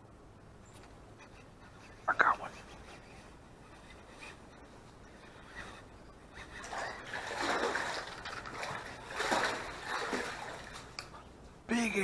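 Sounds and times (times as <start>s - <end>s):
fish splashing in water: 6.4s - 11.0s.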